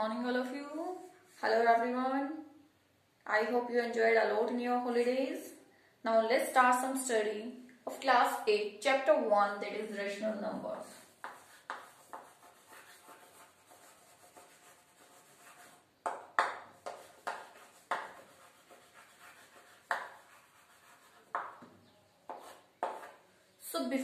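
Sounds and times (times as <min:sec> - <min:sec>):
chalk tapping and scratching: 0:10.9 - 0:23.3.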